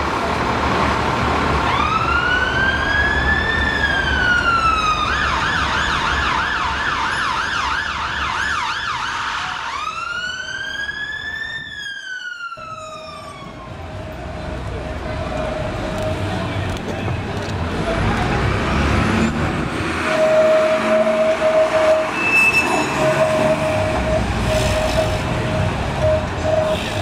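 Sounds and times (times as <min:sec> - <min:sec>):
street traffic noise: 0:00.0 - 0:27.0
emergency vehicle siren: 0:01.6 - 0:16.2, 0:20.0 - 0:27.0.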